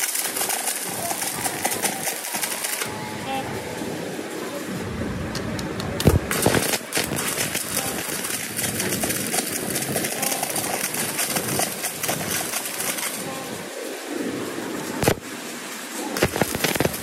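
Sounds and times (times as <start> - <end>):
loud sharp cracks: 0.0 - 2.9, 5.9 - 13.2, 15.0 - 15.3, 16.2 - 17.0
welding arc crackling: 0.0 - 17.0.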